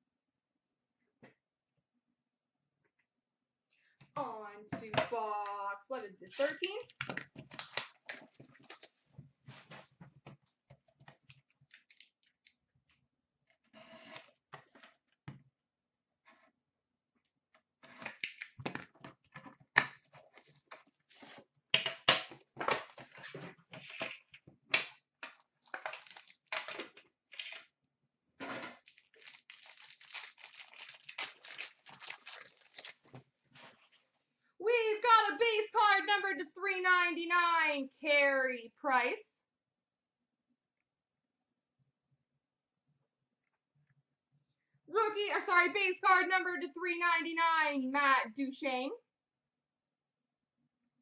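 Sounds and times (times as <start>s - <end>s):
plastic wrap crinkling and tearing: 25.6s - 26.7s, 28.8s - 33.2s.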